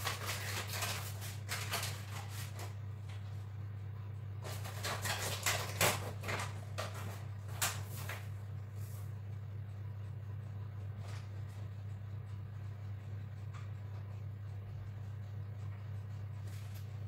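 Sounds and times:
rustling of kitchen items: 0.0 - 3.4, 4.4 - 9.1
steady low hum: 0.0 - 17.0.

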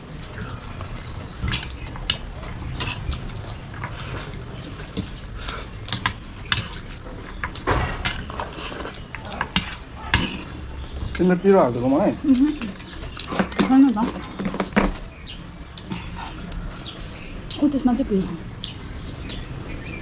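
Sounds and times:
slurping and chewing noodles: 0.2 - 7.1, 8.1 - 10.6.

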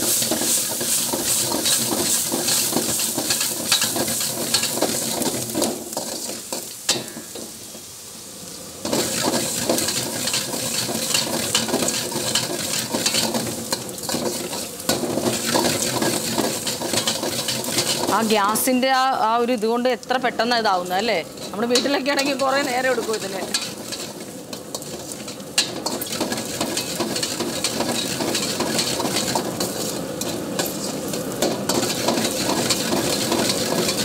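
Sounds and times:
onions sizzling in oil: 0.0 - 34.0
metal ladle scraping a wok: 8.9 - 18.2, 21.3 - 34.0.

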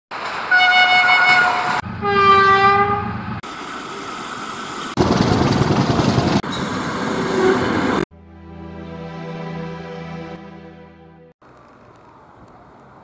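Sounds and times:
trains running past: 0.1 - 2.4, 3.0 - 8.1
train horn blasts: 0.5 - 3.2.

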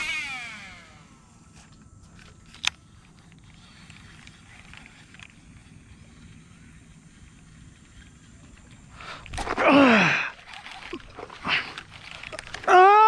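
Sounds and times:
fishing reel spool whirring: 0.0 - 13.0
small ticks: 1.5 - 9.4.

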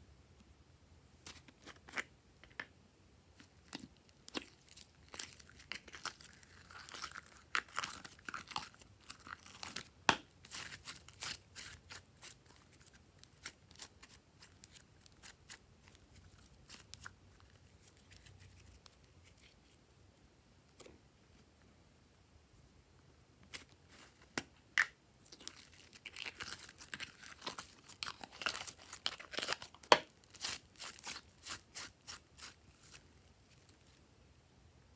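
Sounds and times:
slime clicking and crackling: 3.6 - 17.1.

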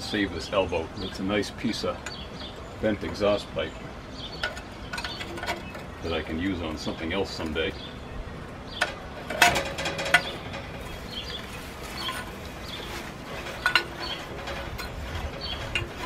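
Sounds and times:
metal clank: 4.3 - 6.2, 8.7 - 16.0
metal clinks and scrapes: 4.3 - 6.2, 8.7 - 16.0.

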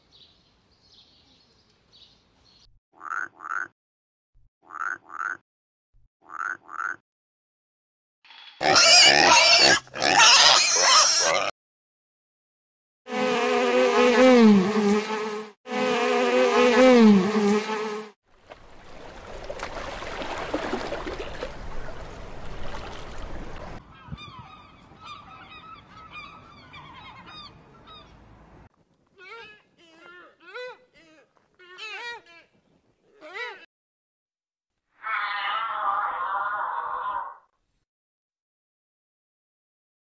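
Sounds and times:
frog croaks: 3.0 - 3.7, 4.6 - 5.4, 6.2 - 7.0
loud harsh animal calls: 8.6 - 11.5, 35.0 - 37.4
honeybees buzzing: 13.1 - 18.1
long wavering animal calls: 35.0 - 37.4.

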